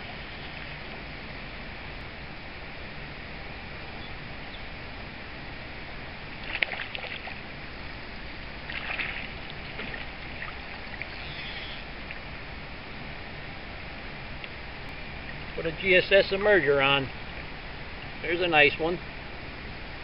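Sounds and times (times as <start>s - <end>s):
river flowing: 0.0s - 20.0s
fish splashing at surface: 6.4s - 7.4s, 8.7s - 11.1s.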